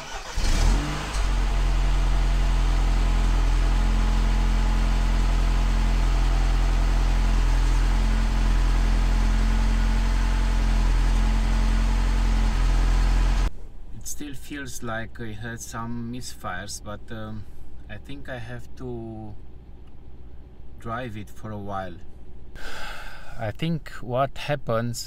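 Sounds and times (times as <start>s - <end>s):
car engine running at tailpipe: 0.4s - 13.6s.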